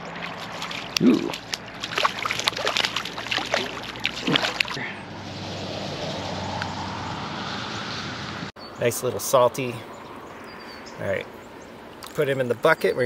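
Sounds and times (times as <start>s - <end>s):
fish splashing at the surface: 0.1s - 4.9s.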